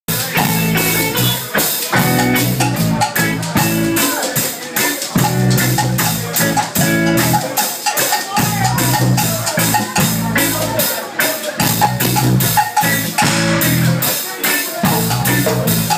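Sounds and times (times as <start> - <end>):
drum kit steady beat: 0.1 - 15.9
electric guitar: 0.1 - 15.9
low bass line: 8.5 - 10.8, 11.6 - 14.0.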